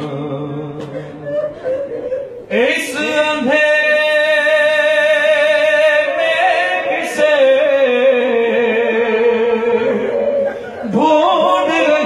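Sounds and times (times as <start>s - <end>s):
man chanting into a microphone: 2.5s - 12.0s.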